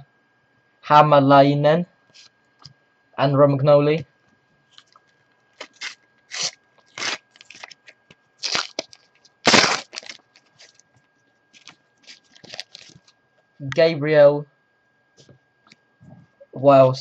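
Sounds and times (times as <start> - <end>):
wrapper crinkling and tearing: 5.6 - 10.8, 11.6 - 13.1.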